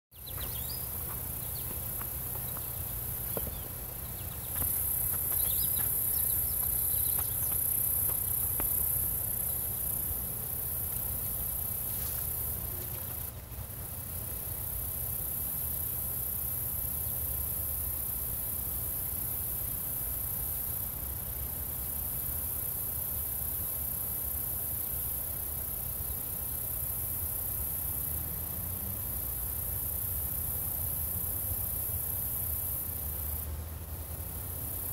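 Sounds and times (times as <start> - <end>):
bird chirps: 0.1 - 8.8
crickets chirping: 0.1 - 34.9.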